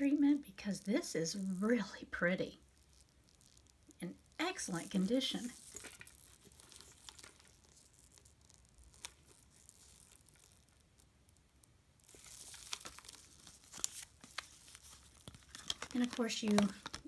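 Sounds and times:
leather bag rustling: 0:04.6 - 0:10.7.

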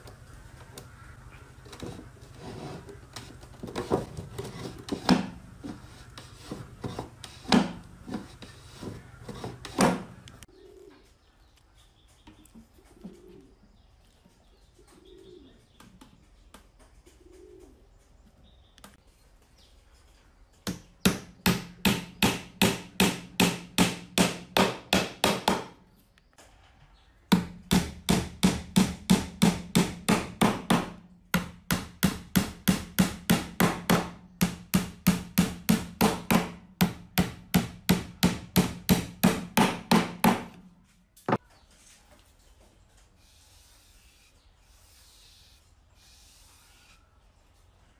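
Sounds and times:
hammer driving nails into wood: 0:04.8 - 0:05.4, 0:06.5 - 0:08.3, 0:09.3 - 0:10.2, 0:20.7 - 0:25.8, 0:27.3 - 0:40.6
dove cooing faintly: 0:08.4 - 0:11.2, 0:12.6 - 0:13.8, 0:14.4 - 0:15.8, 0:17.0 - 0:18.1.

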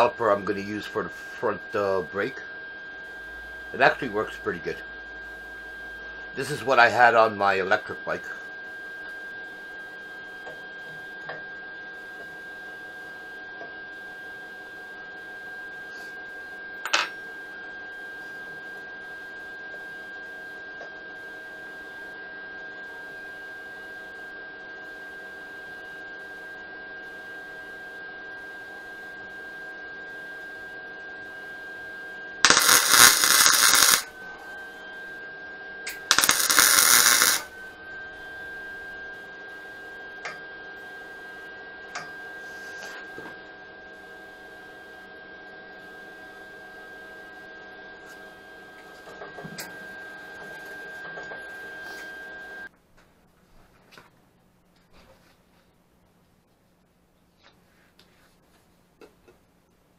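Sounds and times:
air tool hissing bursts: 0:32.4 - 0:34.1, 0:36.1 - 0:37.5.

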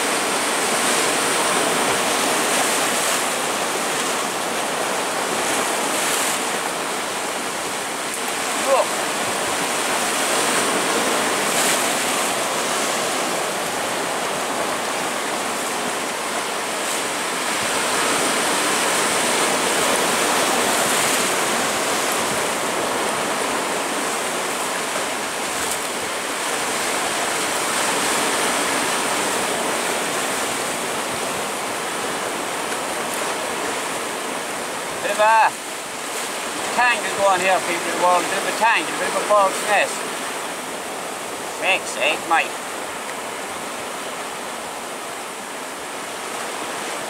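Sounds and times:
surf washing over rocks: 0:00.0 - 0:47.0.

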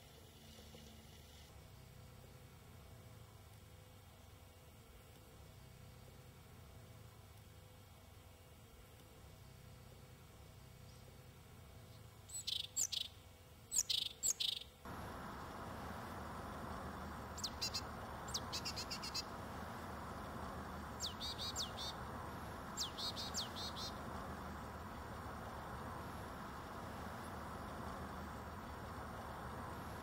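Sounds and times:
songbirds chirping: 0:09.4 - 0:30.0
high downward-sliding bird calls: 0:12.3 - 0:13.1, 0:13.7 - 0:30.0.

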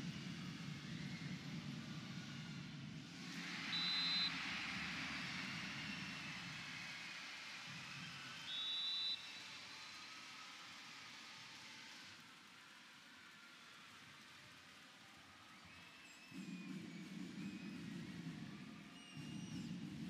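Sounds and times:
arena crowd cheering: 0:03.2 - 0:18.1
shrill whistle blasts: 0:03.6 - 0:04.6, 0:08.0 - 0:09.5.

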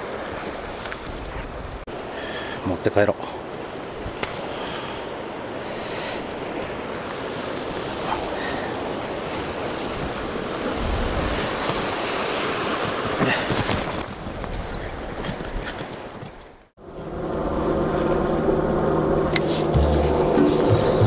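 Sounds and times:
surf washing against rocks: 0:01.9 - 0:14.6
wind on the microphone: 0:06.2 - 0:16.6.

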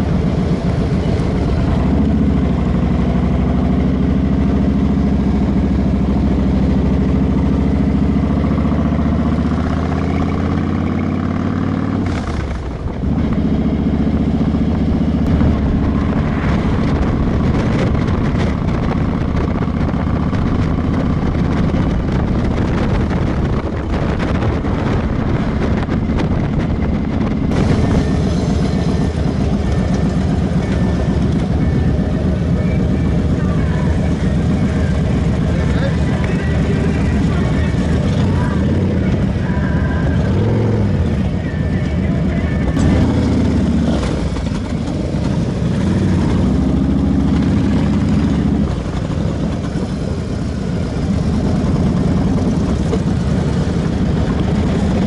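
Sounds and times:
motorcycle engine running: 0:00.0 - 0:55.0
wind buffeting microphone: 0:14.6 - 0:33.4.

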